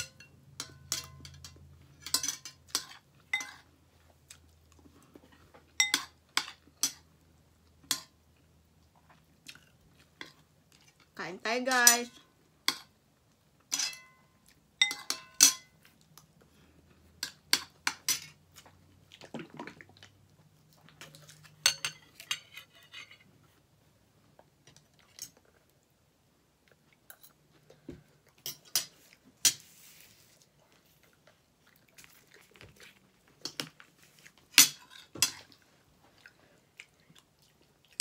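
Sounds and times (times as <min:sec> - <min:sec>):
cutlery clinking on plates: 0:00.0 - 0:03.7, 0:05.8 - 0:07.0, 0:13.7 - 0:14.2, 0:14.8 - 0:15.8, 0:21.5 - 0:23.2, 0:34.5 - 0:35.5.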